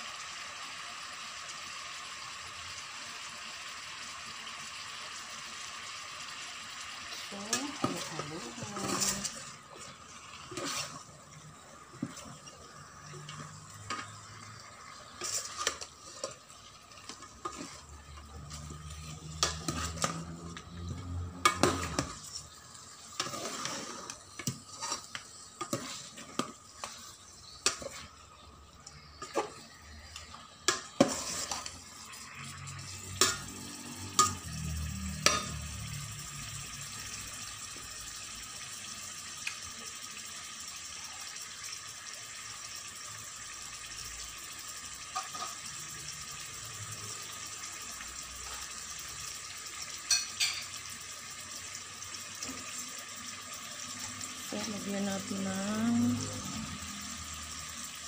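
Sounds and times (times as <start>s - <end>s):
chicken sizzling in a pot: 0.0s - 58.0s
metal spoon scraping a pot: 7.5s - 11.1s, 15.0s - 28.2s, 29.1s - 34.6s.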